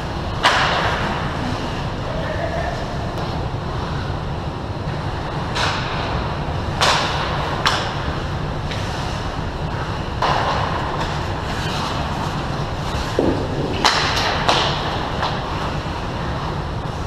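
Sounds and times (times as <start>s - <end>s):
steady low rumble: 0.0s - 17.0s
skates scraping ice: 10.2s - 17.0s.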